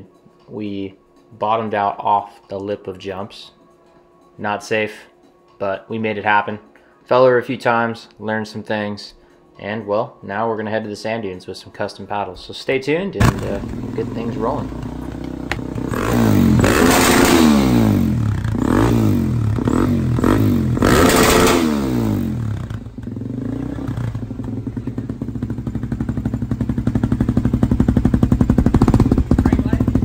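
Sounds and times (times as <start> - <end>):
motorcycle engine revving and idling: 13.2 - 30.0.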